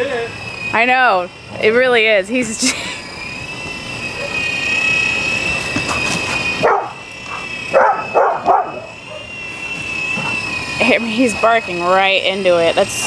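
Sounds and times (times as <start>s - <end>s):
toy helicopter rotor whine: 0.0s - 13.0s
dog barking: 6.6s - 7.0s, 7.8s - 9.2s.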